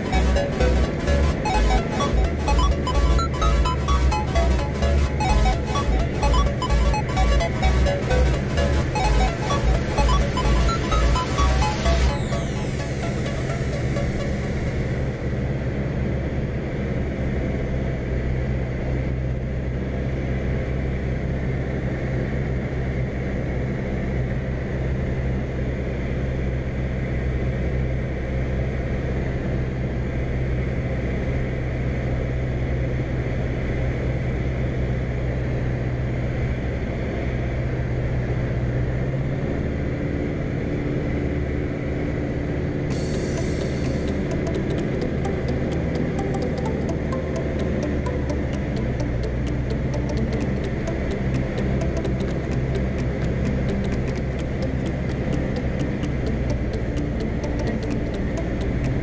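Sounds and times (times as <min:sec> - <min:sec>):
aircraft engine droning: 0:00.0 - 0:19.9, 0:42.9 - 0:59.0.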